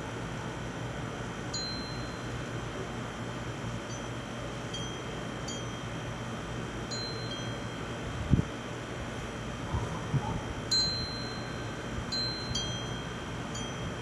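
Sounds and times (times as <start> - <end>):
wind chimes ringing: 1.5 - 2.4, 3.8 - 6.0, 6.9 - 7.8, 10.7 - 14.0.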